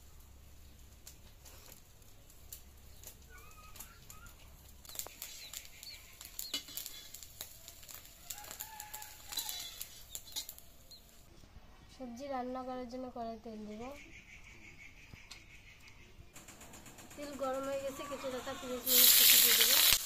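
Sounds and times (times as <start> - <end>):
metal spatula scraping iron pan: 6.5 - 7.2.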